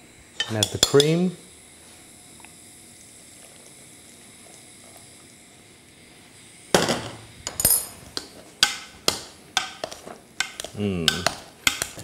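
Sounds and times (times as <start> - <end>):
utensil knocking saucepan: 8.6 - 12.0.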